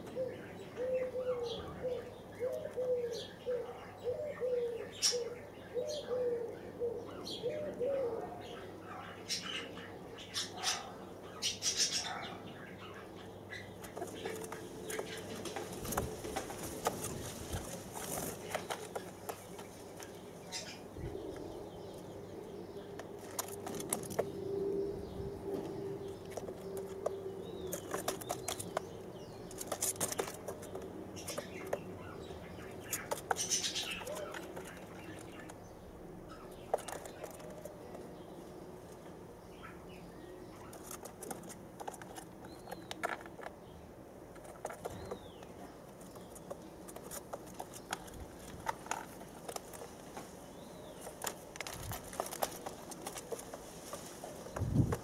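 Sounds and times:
feathers rustling and scratching: 13.8 - 20.8, 23.0 - 24.4, 25.5 - 35.6, 44.3 - 55.0.

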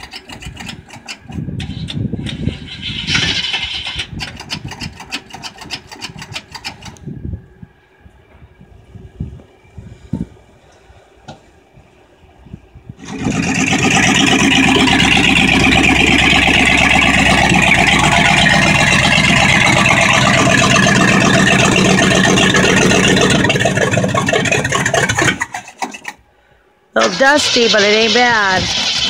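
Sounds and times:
engine starting and idling: 0.0 - 7.1, 13.0 - 29.0.

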